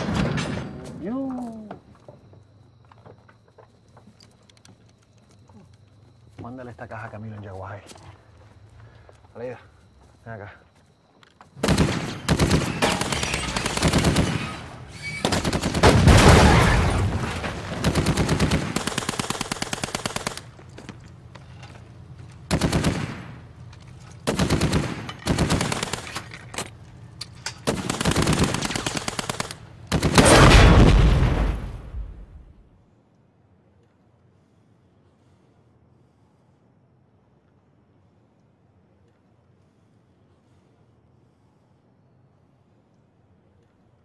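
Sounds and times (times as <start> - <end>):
automatic gunfire bursts: 11.6 - 14.6, 17.8 - 20.5, 22.5 - 23.4, 24.2 - 26.2, 27.7 - 30.6.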